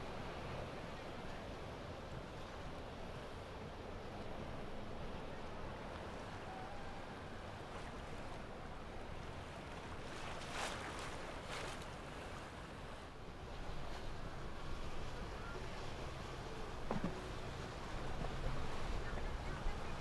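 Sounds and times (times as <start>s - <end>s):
boat engines rumbling: 0.0s - 20.0s
churning wake water: 0.0s - 20.0s.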